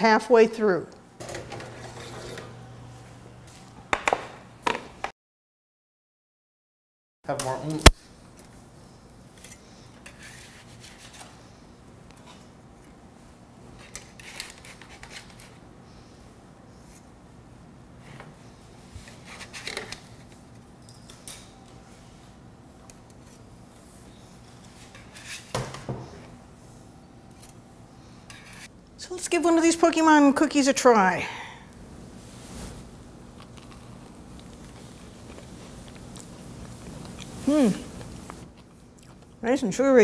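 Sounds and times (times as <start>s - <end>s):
metal spatula scraping baking sheet: 1.7s - 2.6s, 24.8s - 25.5s, 28.3s - 28.7s.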